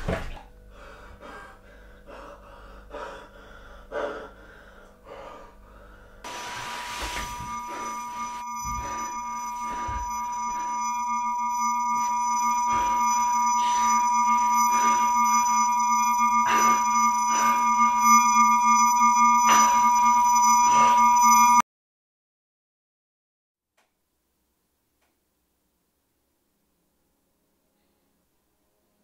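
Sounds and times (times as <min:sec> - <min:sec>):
low electronic hum: 0:00.0 - 0:21.6
high electronic ringing tone: 0:06.3 - 0:21.6.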